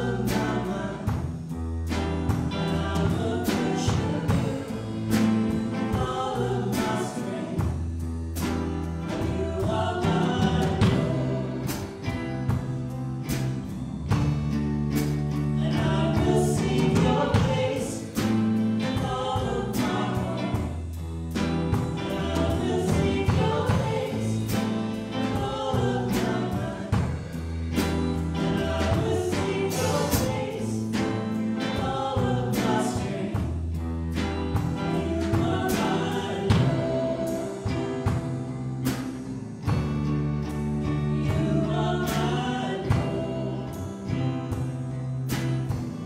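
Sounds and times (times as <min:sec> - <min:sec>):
person singing: 0:00.0 - 0:01.3, 0:02.5 - 0:07.8, 0:09.0 - 0:12.1, 0:15.6 - 0:20.9, 0:22.0 - 0:33.7, 0:34.8 - 0:38.8, 0:41.0 - 0:44.5
guitars: 0:00.0 - 0:46.0
piano: 0:00.0 - 0:46.0
worship band playing: 0:00.0 - 0:46.0.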